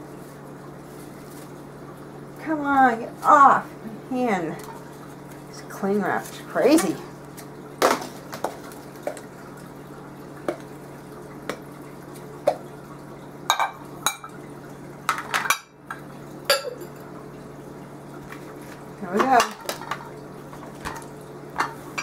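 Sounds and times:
glass containers clinking: 13.5s - 14.4s, 15.1s - 17.1s, 20.8s - 22.0s.

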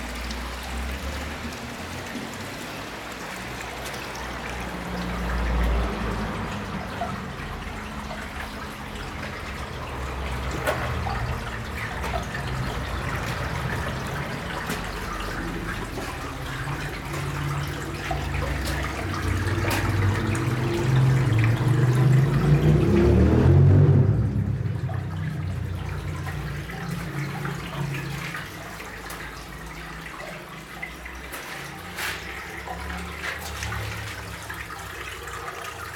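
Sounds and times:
water trickling in stone channel: 0.0s - 35.9s
low rumbles: 11.0s - 28.0s.

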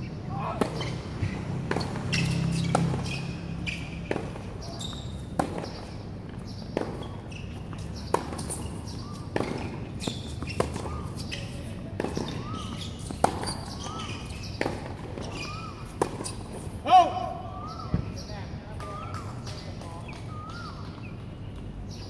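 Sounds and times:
tennis ball struck by rackets: 0.6s - 16.5s
shoe squeaks on court: 0.7s - 16.8s.

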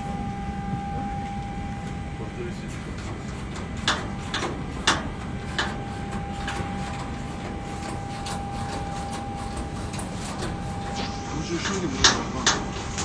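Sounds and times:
steady background noise: 0.0s - 13.0s
knocks and clanks of metal cage: 3.0s - 5.8s.

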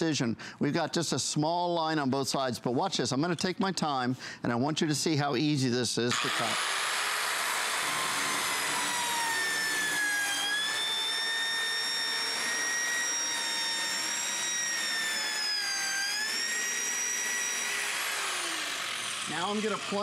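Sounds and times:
circular saw cutting plywood: 6.1s - 20.0s.

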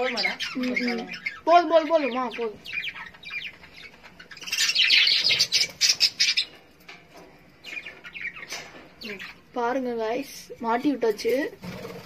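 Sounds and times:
budgerigars chirping: 0.0s - 6.8s, 7.5s - 9.5s.

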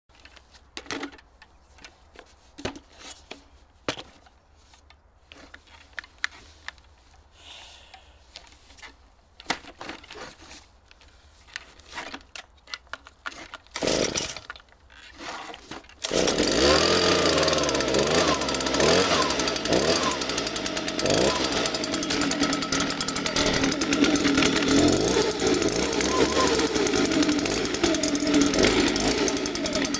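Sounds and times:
clicks and knocks of handling: 0.1s - 7.2s, 8.3s - 16.0s
leaf blower engine running: 13.8s - 14.4s, 16.0s - 29.9s.

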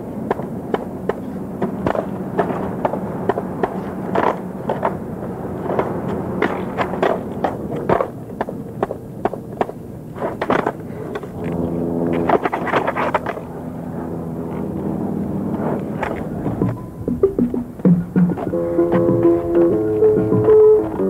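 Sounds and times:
skateboard wheels rolling: 0.0s - 21.0s
steady hum: 0.0s - 21.0s
skateboard deck clacking: 0.1s - 13.5s, 15.8s - 21.0s.

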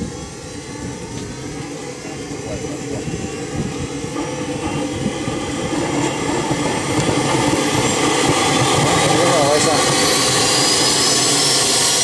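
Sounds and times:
high turbine whine: 0.0s - 12.0s
jet turbine roar: 0.0s - 12.0s.

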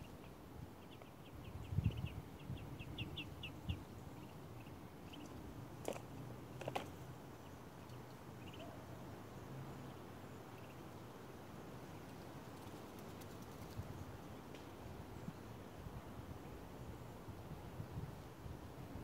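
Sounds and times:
bird chirping: 7.4s - 8.8s.

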